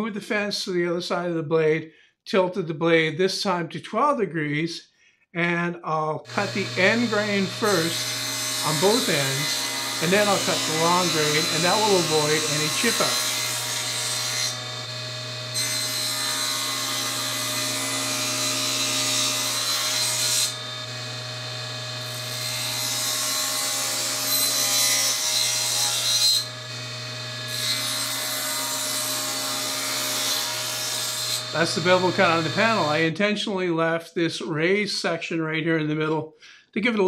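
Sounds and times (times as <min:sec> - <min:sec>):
saw blade spinning free: 0:06.3 - 0:17.5, 0:31.4 - 0:33.0
table saw cutting wood: 0:06.3 - 0:33.2.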